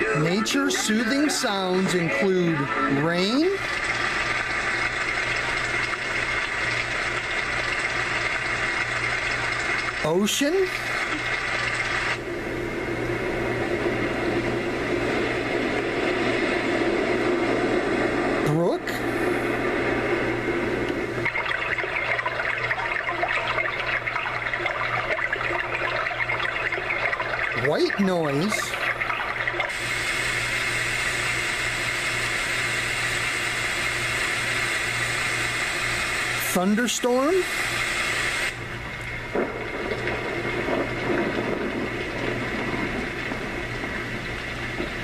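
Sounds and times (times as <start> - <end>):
steady hiss: 0.0 - 45.0
recorded stream water bubbling: 19.4 - 31.9, 38.5 - 45.0
rumble of thunder: 39.3 - 45.0.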